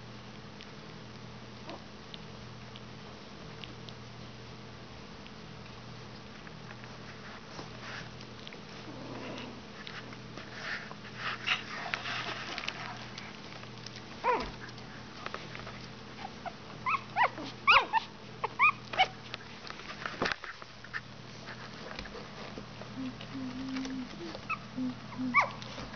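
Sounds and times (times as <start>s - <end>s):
puppies scuffling on blankets: 6.0s - 24.7s, 25.3s - 25.9s
puppies whimpering and squeaking: 14.2s - 14.6s, 16.1s - 19.2s, 23.1s - 25.9s.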